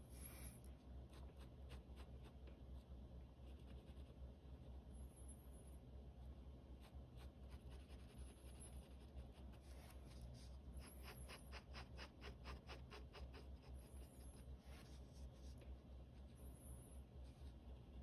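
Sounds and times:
pen scratching on paper: 0:10.8 - 0:15.2.

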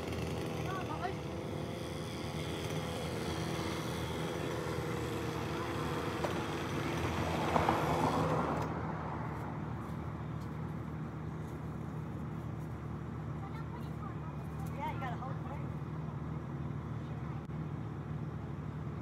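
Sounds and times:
chainsaw idling: 0:00.0 - 0:08.6
low steady engine hum: 0:00.0 - 0:19.0.

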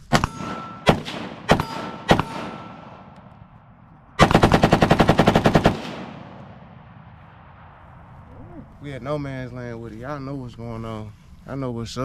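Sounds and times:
echoing gunshots: 0:00.0 - 0:08.4
thin ringing tone: 0:00.2 - 0:00.9
rapid gunfire burst: 0:04.2 - 0:06.4.

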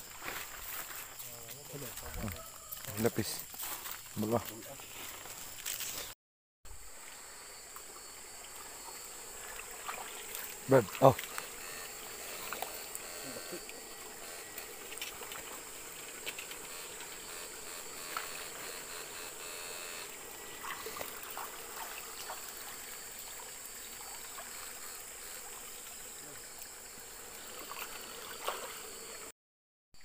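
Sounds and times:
steady high-pitched hiss: 0:00.0 - 0:06.1, 0:06.7 - 0:29.3
stream water trickling: 0:06.7 - 0:17.1, 0:20.1 - 0:29.3
small knocks and splashes: 0:07.7 - 0:11.5, 0:20.6 - 0:24.8, 0:27.6 - 0:28.8.

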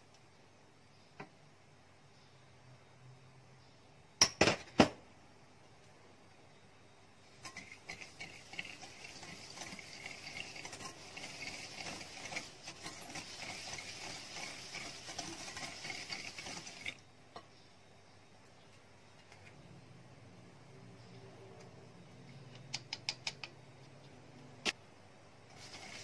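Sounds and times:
whisk wires scraping glass bowl: 0:07.3 - 0:17.0, 0:25.5 - 0:26.0.

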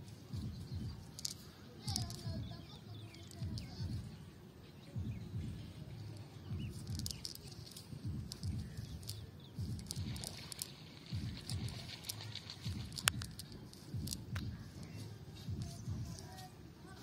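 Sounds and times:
low irregular rumbles: 0:00.0 - 0:17.0
net rustling on grass: 0:06.7 - 0:16.6.

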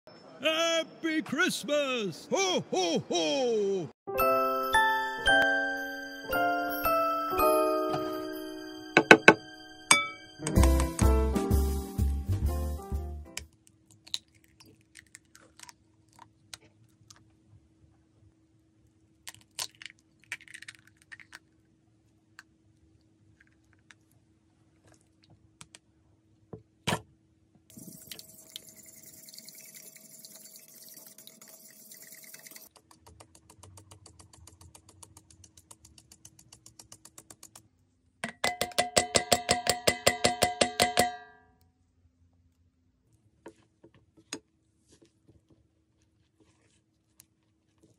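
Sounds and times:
eggs cracking on glass bowl: 0:13.8 - 0:16.2, 0:19.2 - 0:21.5.

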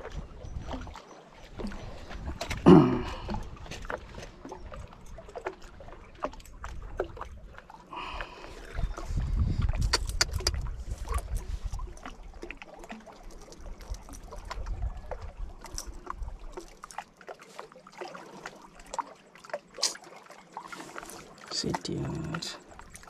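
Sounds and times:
wind rumble on microphone: 0:00.0 - 0:07.6, 0:08.4 - 0:12.4, 0:13.7 - 0:16.6.

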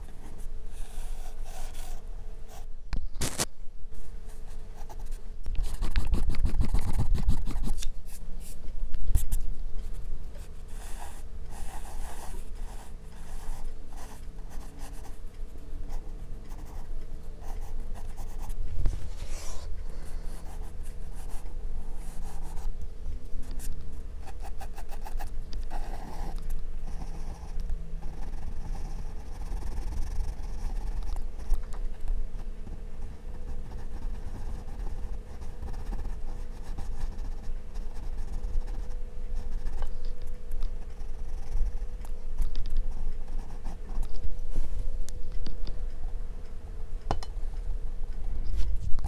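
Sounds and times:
pencil scratching on paper: 0:00.0 - 0:02.7, 0:04.3 - 0:08.6, 0:10.4 - 0:15.2, 0:15.8 - 0:22.7, 0:24.2 - 0:31.6, 0:32.4 - 0:39.9, 0:40.9 - 0:41.8, 0:42.9 - 0:44.1.

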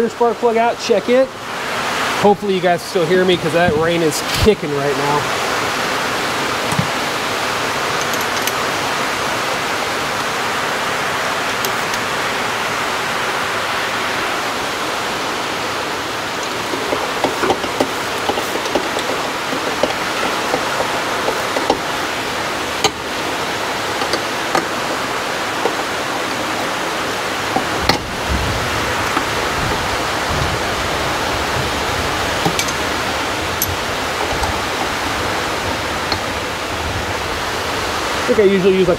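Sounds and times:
heavy rain falling: 0:00.0 - 0:38.9
hand tools clicking and knocking: 0:08.0 - 0:08.6, 0:11.5 - 0:12.1, 0:16.3 - 0:23.2, 0:23.8 - 0:26.1, 0:27.4 - 0:28.2, 0:29.0 - 0:29.9, 0:32.4 - 0:36.4.

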